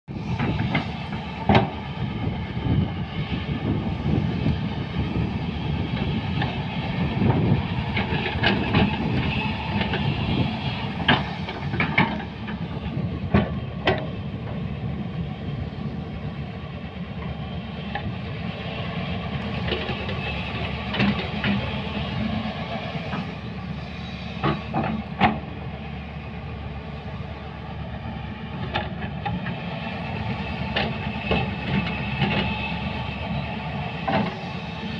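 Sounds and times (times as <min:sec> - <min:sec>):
excavator diesel engine running: 0:00.1 - 0:34.9
bucket and tracks clanking: 0:00.3 - 0:01.9, 0:05.9 - 0:14.6, 0:19.3 - 0:23.4, 0:24.4 - 0:25.5, 0:28.6 - 0:34.9.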